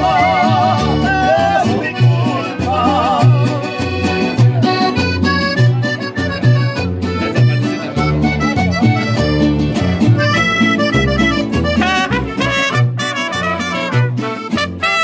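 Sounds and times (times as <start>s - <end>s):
man singing with vibrato: 0.0s - 4.4s
bass beat: 0.0s - 15.0s
strummed acoustic guitar: 0.0s - 15.0s
piano accordion: 4.6s - 11.8s.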